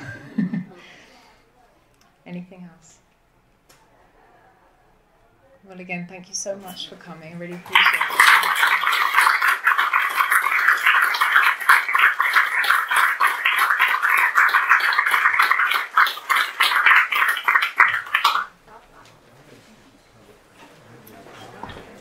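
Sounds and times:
audience applauding: 0:07.7 - 0:18.5.

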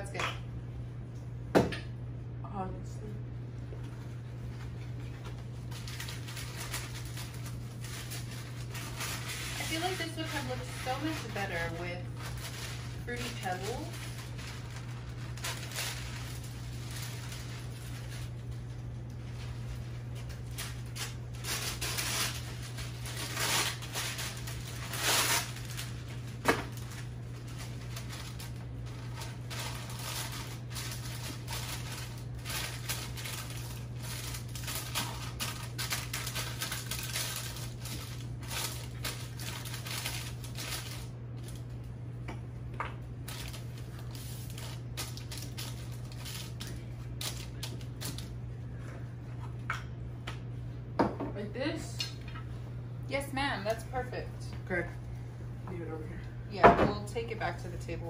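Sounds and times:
steady low hum: 0:00.0 - 0:58.0
parchment paper rustling: 0:03.8 - 0:41.8, 0:43.1 - 0:49.6.

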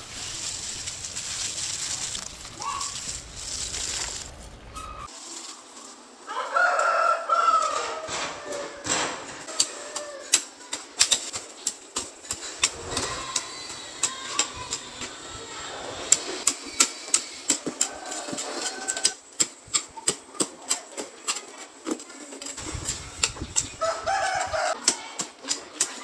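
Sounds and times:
rooster crowing: 0:06.3 - 0:10.4, 0:17.5 - 0:19.2, 0:23.7 - 0:24.8.

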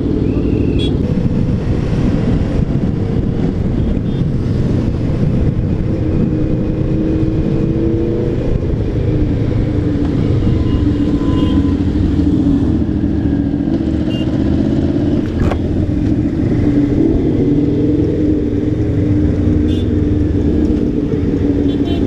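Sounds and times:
wind and road noise: 0:00.0 - 0:22.0
motorcycle engine running: 0:08.6 - 0:17.7.

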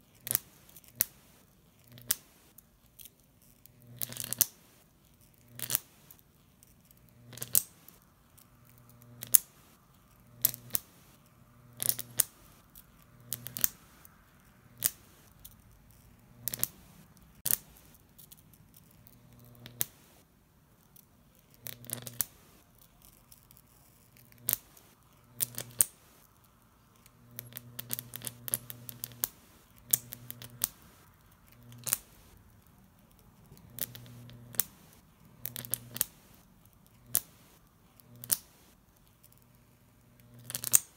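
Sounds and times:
electric arc crackling: 0:03.8 - 0:04.6, 0:06.9 - 0:18.1, 0:18.8 - 0:20.3, 0:21.6 - 0:32.8, 0:33.4 - 0:38.8, 0:40.2 - 0:40.9
low arc buzz: 0:07.0 - 0:15.4, 0:19.0 - 0:20.3, 0:24.2 - 0:32.4, 0:33.4 - 0:40.9.

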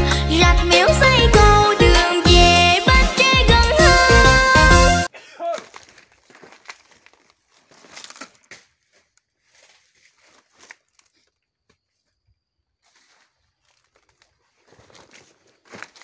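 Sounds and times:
dry leaves rustling and crackling: 0:05.6 - 0:11.4, 0:12.8 - 0:16.0.

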